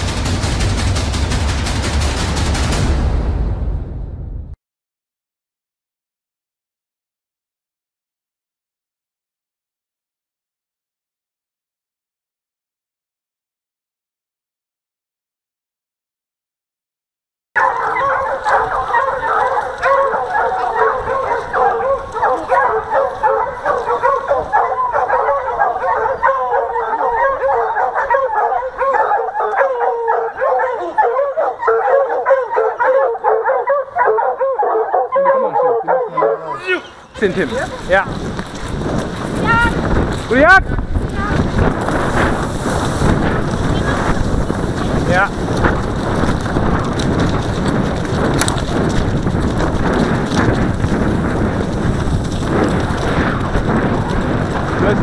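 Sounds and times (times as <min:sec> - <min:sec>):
hoofbeats of cantering horses: 0:17.6 - 0:26.4, 0:37.1 - 0:55.0
hounds baying: 0:17.6 - 0:37.9
wind buffeting microphone: 0:17.6 - 0:55.0.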